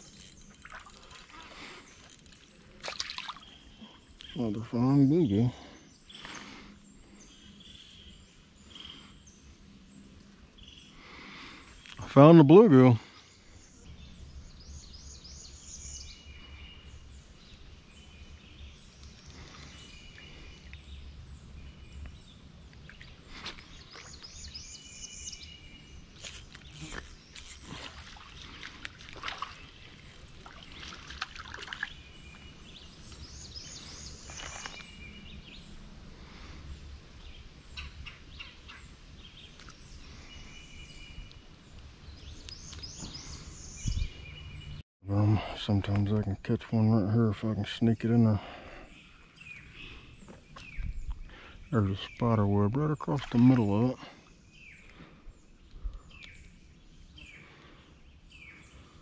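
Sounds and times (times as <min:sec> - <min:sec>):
bird song: 0:00.0 - 0:59.0
rustling or scraping: 0:26.2 - 0:31.4.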